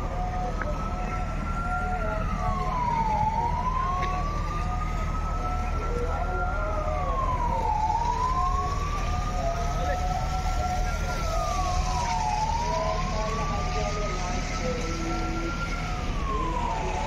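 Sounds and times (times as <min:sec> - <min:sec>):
siren wailing: 0:00.0 - 0:17.0.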